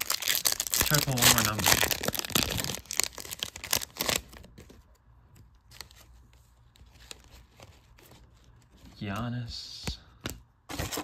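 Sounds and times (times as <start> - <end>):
foil pack crinkling and tearing: 0.0 - 4.5.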